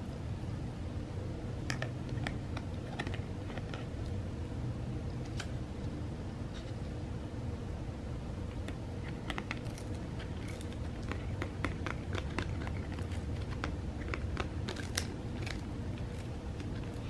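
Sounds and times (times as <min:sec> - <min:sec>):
cat crunching dried fish skin: 0:09.0 - 0:17.0.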